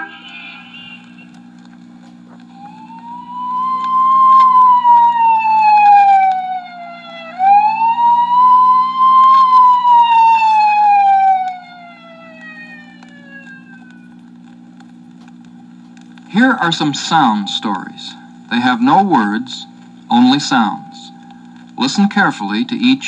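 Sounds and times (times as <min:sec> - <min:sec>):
wailing siren: 0:00.0 - 0:14.9, 0:19.0 - 0:21.7
steady low hum: 0:00.0 - 0:23.0.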